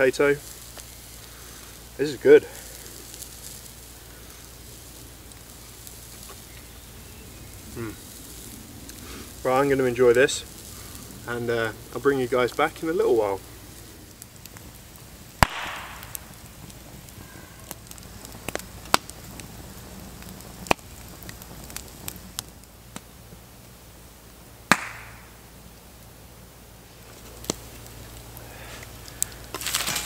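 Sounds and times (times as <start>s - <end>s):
campfire crackling: 0.0s - 30.0s
fire popping: 0.0s - 30.0s.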